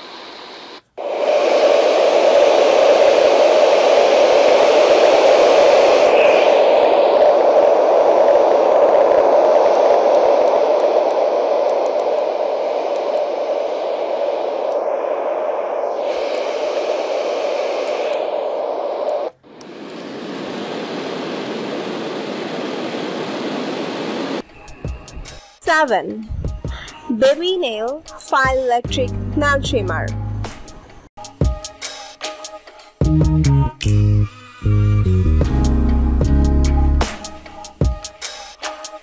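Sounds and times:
white noise machine hiss: 0.0 - 25.6.

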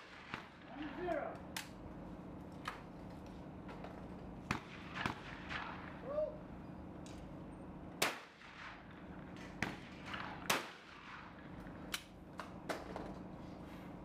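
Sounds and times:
shotgun shots: 0.0 - 1.3, 4.5 - 6.1, 8.0 - 11.6.

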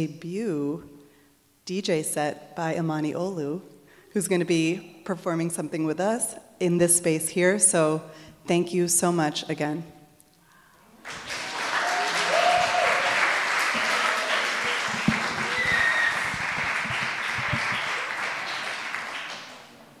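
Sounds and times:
audience applauding: 11.0 - 20.0.

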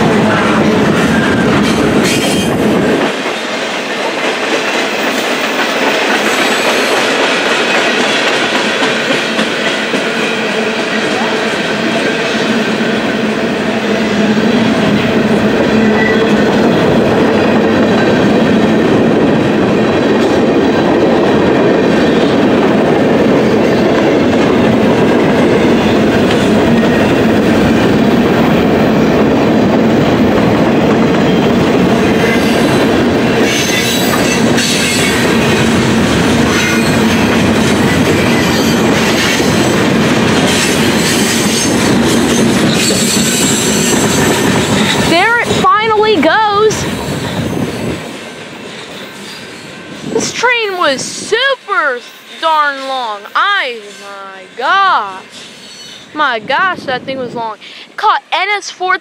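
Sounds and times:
train wheels rumbling on rails: 0.0 - 59.0
high wheel squeal: 42.4 - 45.1, 55.2 - 56.2.

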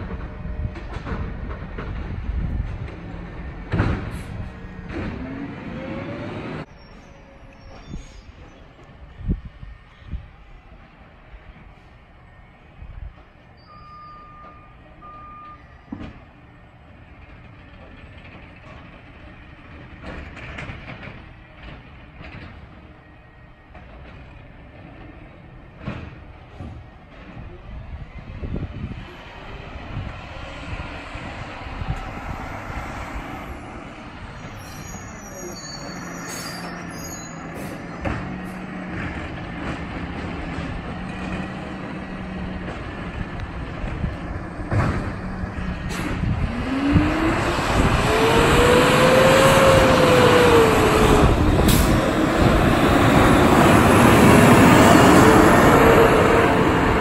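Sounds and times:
engine revving: 2.9 - 6.7, 37.5 - 57.0
air brakes hissing: 34.4 - 38.6, 51.6 - 52.5.

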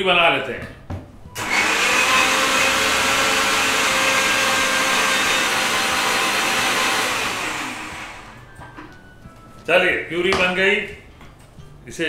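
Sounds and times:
mixer grinder whirring: 1.3 - 8.5.

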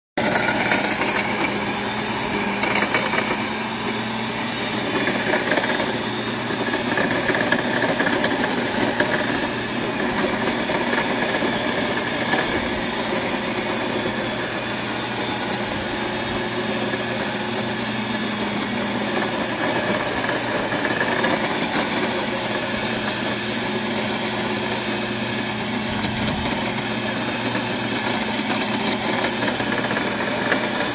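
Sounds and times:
electric tiller churning snow: 0.2 - 30.9.

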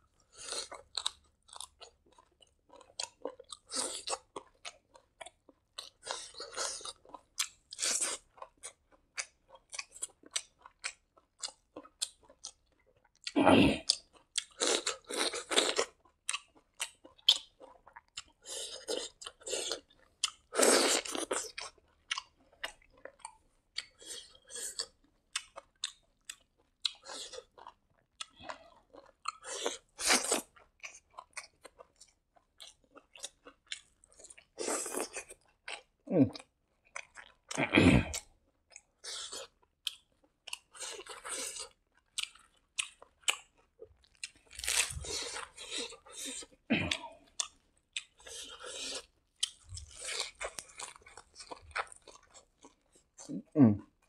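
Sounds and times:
wet chewing and mouth clicks: 0.2 - 54.0
crunchy bites: 39.1 - 52.8.

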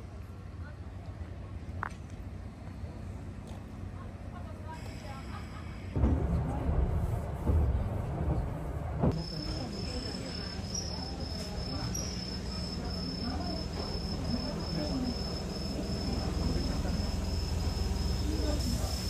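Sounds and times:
faint voices: 3.6 - 19.0
insect chirping: 9.2 - 19.0.

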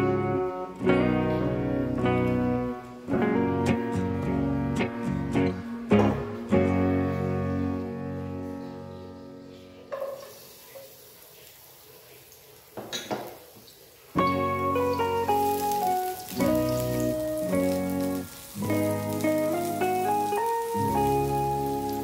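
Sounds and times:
guitar music: 0.0 - 9.9, 14.2 - 22.0
garlic sizzling in hot oil: 10.0 - 22.0.

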